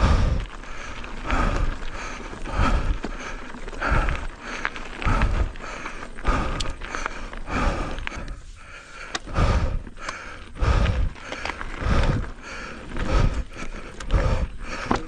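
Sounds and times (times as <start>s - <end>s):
bike clicking and rattling: 0.0s - 15.0s
bike tyres on dirt trail: 0.0s - 15.0s.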